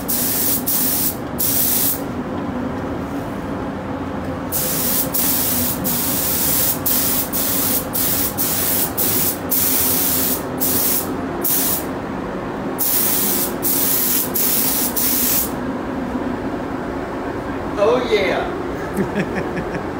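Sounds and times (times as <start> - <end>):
spray gun hissing: 0.0 - 2.0, 4.5 - 11.9, 12.8 - 15.5
steady low hum: 0.0 - 19.9.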